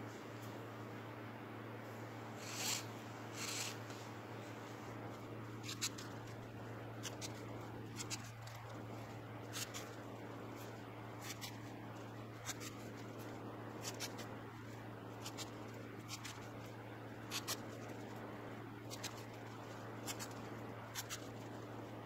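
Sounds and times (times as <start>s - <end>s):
steady low hum: 0.0s - 22.0s
cord rubbing and scratching: 2.4s - 18.2s.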